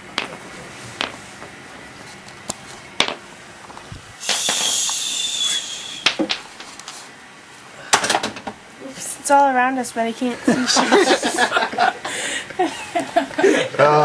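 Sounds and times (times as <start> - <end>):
loud hissing rustle: 3.9 - 7.1.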